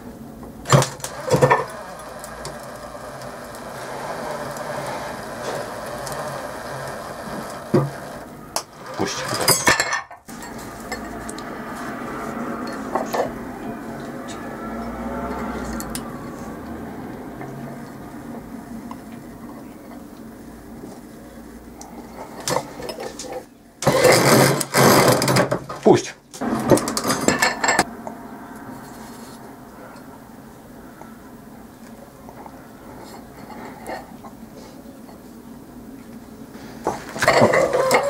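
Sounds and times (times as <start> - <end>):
electric motor running under load: 0.7 - 9.5.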